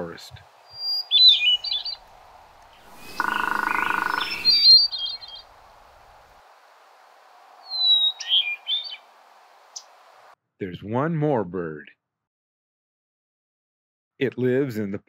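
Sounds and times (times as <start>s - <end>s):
steady background hiss: 0.0s - 10.4s
flute-like thrush song: 0.6s - 5.6s, 7.6s - 9.1s
woodpecker drumming: 0.7s - 6.3s.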